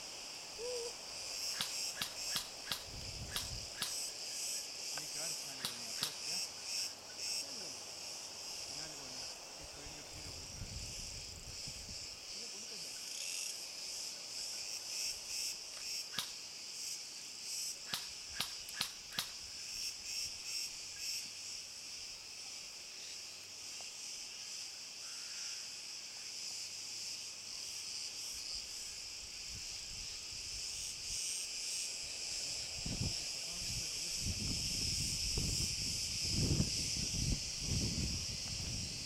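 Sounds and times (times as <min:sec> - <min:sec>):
cicadas chirring: 0:00.0 - 0:39.0
sharp clicks: 0:01.6 - 0:04.0, 0:05.6 - 0:06.2, 0:17.9 - 0:19.4.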